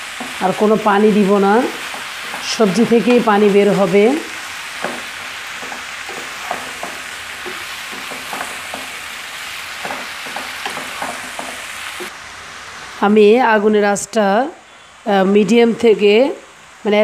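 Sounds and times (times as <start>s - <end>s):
wooden spatula scraping a pan: 0.0s - 12.1s
vegetables sizzling in hot oil: 0.0s - 13.2s.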